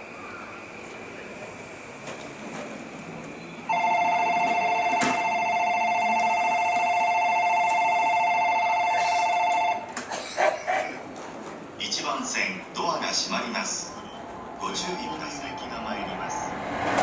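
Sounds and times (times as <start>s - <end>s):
electronic departure bell ringing: 3.7s - 9.9s.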